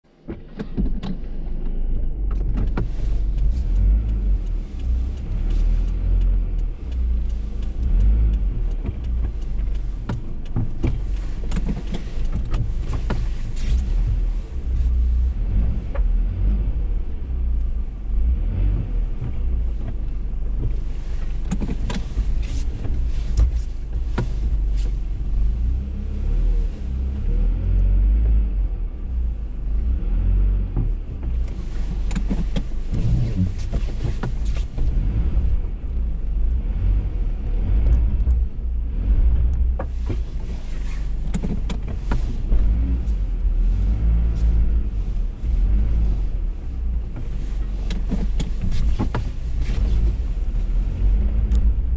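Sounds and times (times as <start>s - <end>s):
engine and tyres rumbling: 0.0s - 51.9s
suspension knocks and rattles: 0.1s - 27.3s, 30.7s - 51.9s.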